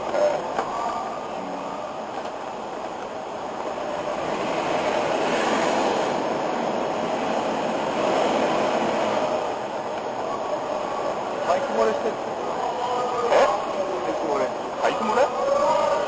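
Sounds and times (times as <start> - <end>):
road and wind noise in a car: 0.0 - 16.0.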